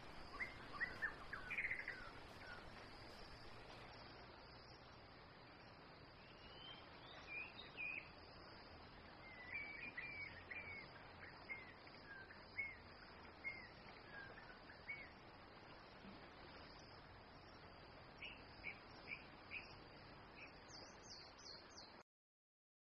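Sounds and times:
faint forest ambience hiss: 0:00.0 - 0:22.0
bird chirping: 0:00.1 - 0:03.5, 0:06.2 - 0:08.1, 0:09.3 - 0:15.1.

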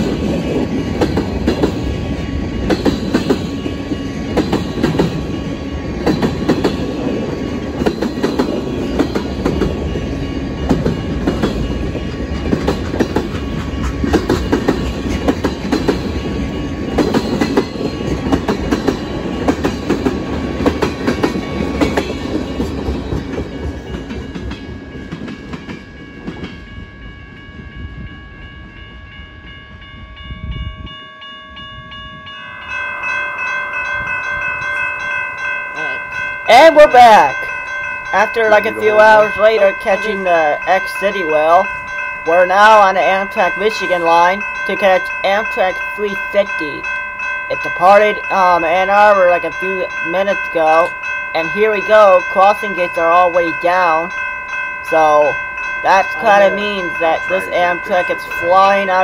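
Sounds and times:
train wheels clicking over rail joints: 0:00.0 - 0:26.6.

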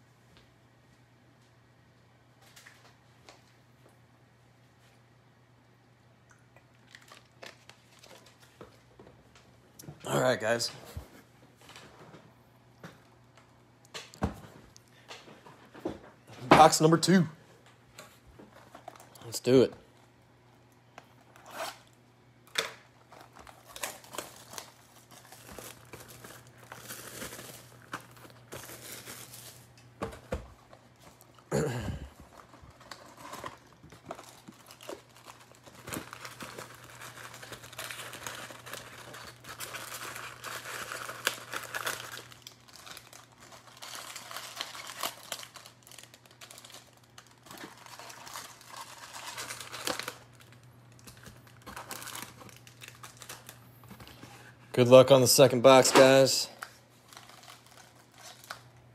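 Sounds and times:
faint steady hum: 0:00.0 - 0:58.9
plastic wrap crinkling and tearing: 0:06.7 - 0:08.9, 0:21.2 - 0:58.9
foil packs rustling: 0:23.0 - 0:58.7.

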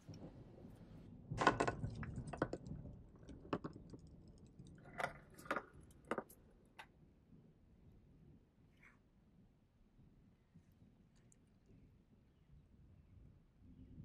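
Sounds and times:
metal tin taps and rattles: 0:01.4 - 0:06.4
light clicks and clatters: 0:01.4 - 0:06.9.

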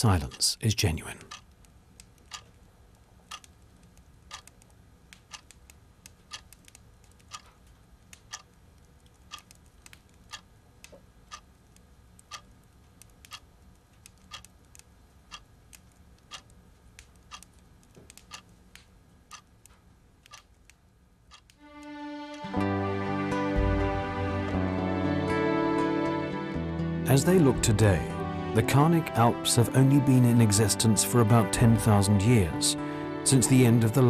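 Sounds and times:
faint low room hum: 0:00.0 - 0:21.8
clock ticking: 0:00.0 - 0:22.6.

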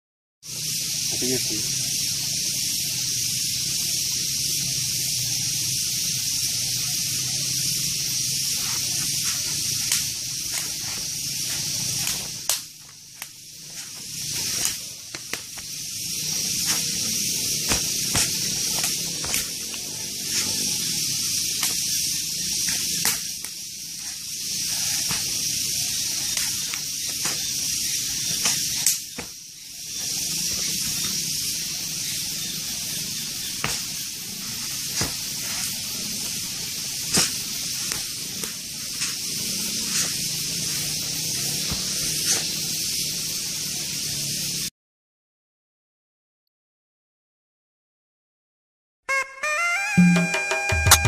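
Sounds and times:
steady high hiss: 0:00.5 - 0:44.7
sharp slaps and snaps: 0:08.6 - 0:15.8, 0:17.6 - 0:20.6, 0:21.5 - 0:21.9, 0:22.6 - 0:25.5, 0:26.1 - 0:29.4, 0:33.6 - 0:34.0, 0:34.9 - 0:39.3, 0:41.6 - 0:42.6.

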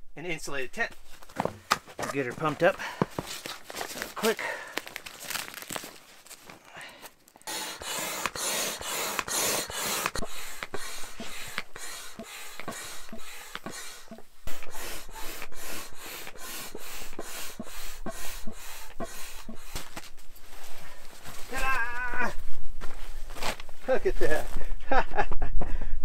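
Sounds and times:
hand air pump strokes: 0:07.4 - 0:22.4.

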